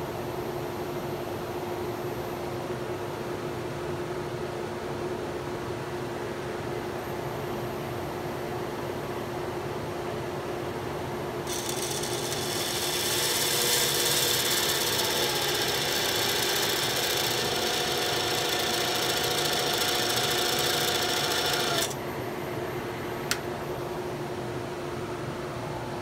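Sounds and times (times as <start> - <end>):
lathe hum: 11.5 - 22.0
texturing tool whirring buzz: 11.5 - 22.0.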